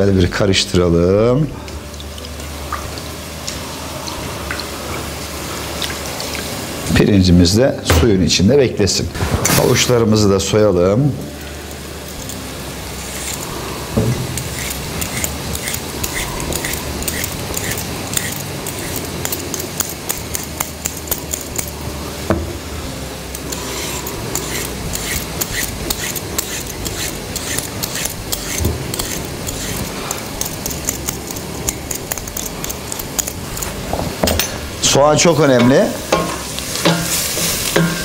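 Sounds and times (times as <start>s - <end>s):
onions sizzling in oil: 1.8s - 7.0s, 11.2s - 38.0s
vegetable peeler scraping carrot: 14.3s - 21.7s, 23.4s - 33.8s.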